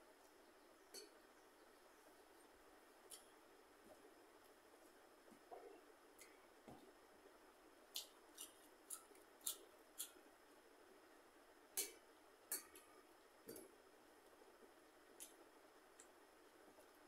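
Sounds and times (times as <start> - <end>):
chewing clicks and smacks: 8.0 - 10.2.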